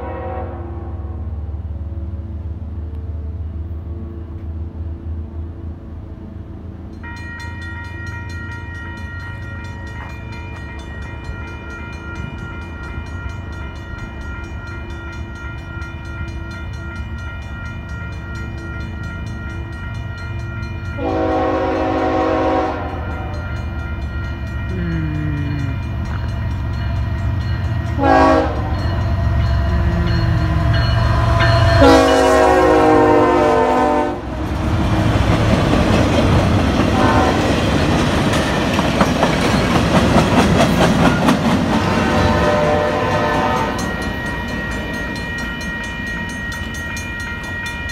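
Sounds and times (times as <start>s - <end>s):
locomotive air horn blasts: 0.0s - 1.2s, 21.0s - 23.5s, 28.0s - 28.9s, 31.8s - 34.4s, 36.9s - 37.6s, 41.8s - 43.9s
diesel locomotive engine rumble: 0.0s - 47.9s.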